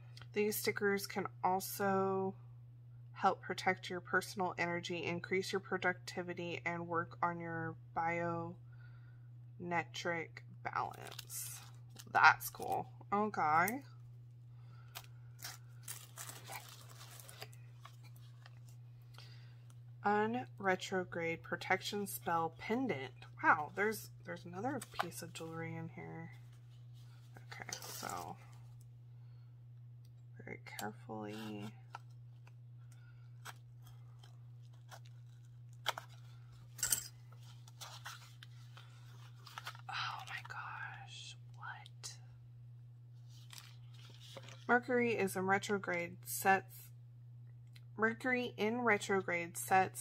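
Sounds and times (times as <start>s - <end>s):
low hum: 6.6s - 49.8s
packaging rustling and clicking: 15.0s - 18.8s.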